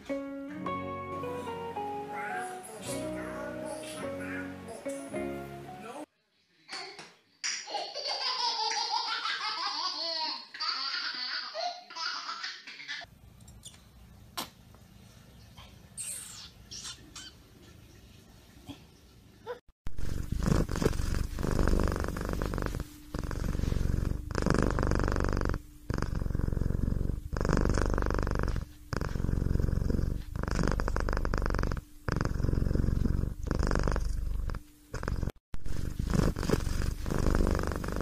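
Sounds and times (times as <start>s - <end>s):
cat purring loudly: 19.9s - 38.0s.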